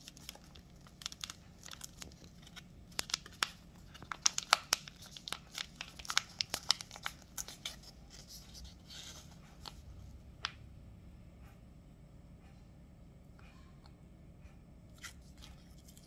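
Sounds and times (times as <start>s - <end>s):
plastic snack packet crinkling: 0.0s - 9.8s.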